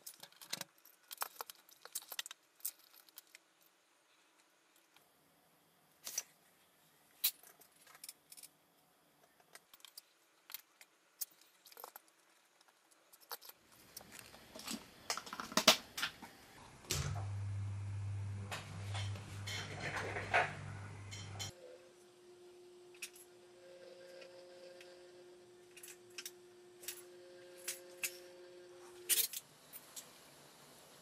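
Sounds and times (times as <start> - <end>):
motor low hum: 16.2 - 31.0.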